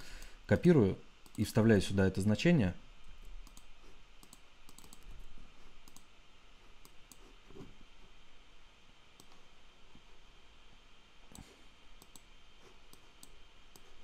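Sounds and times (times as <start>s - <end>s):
mouse and keyboard clicks: 3.4s - 5.1s.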